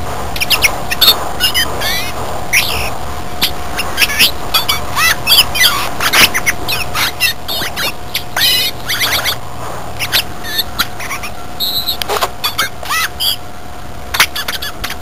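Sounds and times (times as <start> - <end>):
bird singing squeaky whistles: 0.4 - 2.9, 3.8 - 9.4, 10.0 - 13.4.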